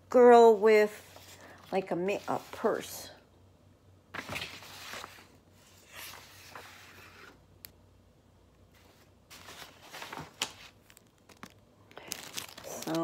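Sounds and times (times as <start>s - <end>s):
plastic sleeves rustling: 8.7s - 13.0s.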